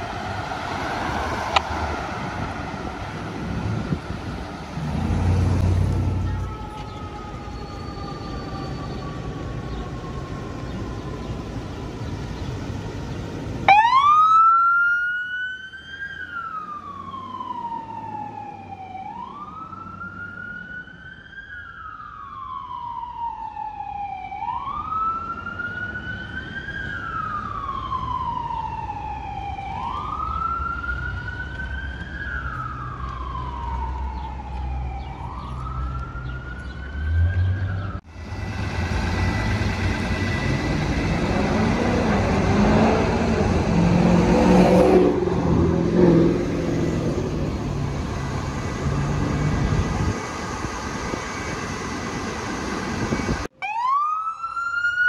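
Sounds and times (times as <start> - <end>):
street traffic: 0.0 - 55.0
electronic siren wailing: 6.1 - 11.3, 13.7 - 38.0, 53.5 - 55.0.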